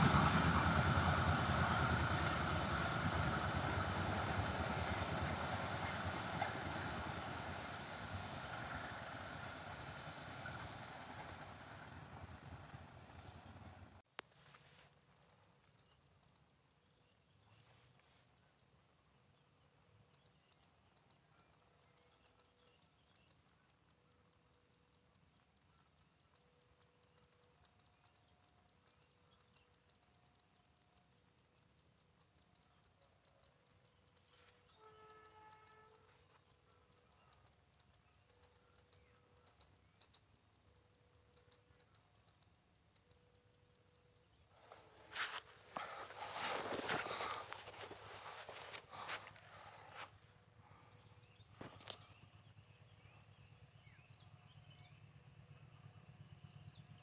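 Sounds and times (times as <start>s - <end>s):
high ticking chirps: 26.7s - 43.3s.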